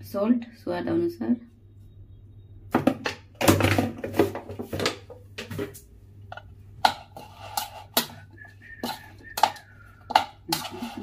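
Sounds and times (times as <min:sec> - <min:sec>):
spoon scraping plastic bowl: 0:06.3 - 0:11.0.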